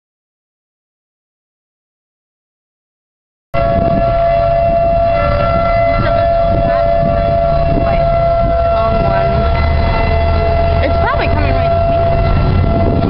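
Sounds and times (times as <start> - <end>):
heavy low rumble: 3.6 - 13.0
warning sirens steady tone: 3.6 - 13.0.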